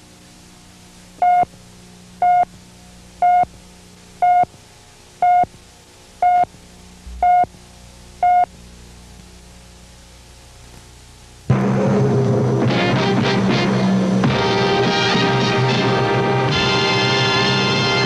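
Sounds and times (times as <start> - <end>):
low hum and hiss: 0.0 - 18.0
short beeps: 1.2 - 1.5, 2.2 - 2.5, 6.2 - 6.5, 7.1 - 7.5, 8.2 - 8.5.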